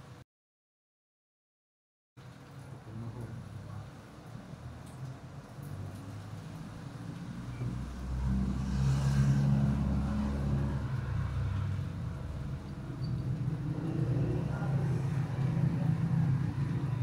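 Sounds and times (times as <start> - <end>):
vehicle engine hum: 4.6 - 17.0.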